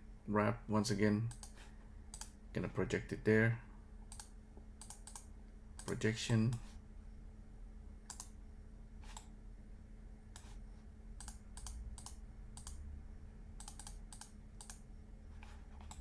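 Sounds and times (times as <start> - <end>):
faint low hum: 0.0 - 16.0
mouse and keyboard clicks: 13.6 - 14.8.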